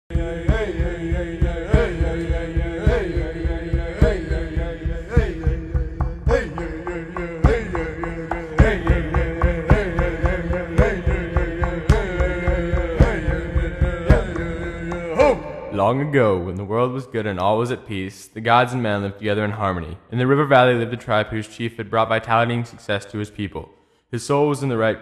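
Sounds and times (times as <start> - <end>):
chant-like vocals: 0.0 - 21.3
steady drum beat: 0.1 - 16.0.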